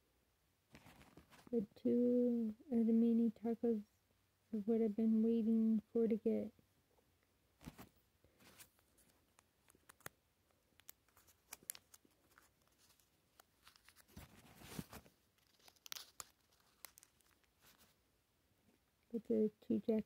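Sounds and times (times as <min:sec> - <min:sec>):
paper wrapper rustling: 0:10.8 - 0:18.0.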